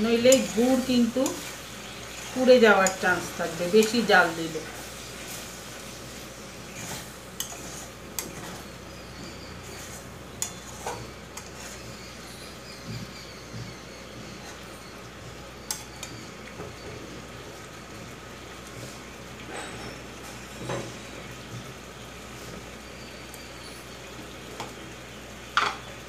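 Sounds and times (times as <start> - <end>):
metal spatula scraping pan: 6.7 - 12.5.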